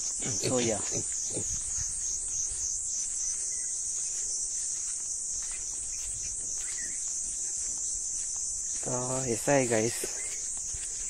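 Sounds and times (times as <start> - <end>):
insects chorus pulsing: 0.0 - 11.0.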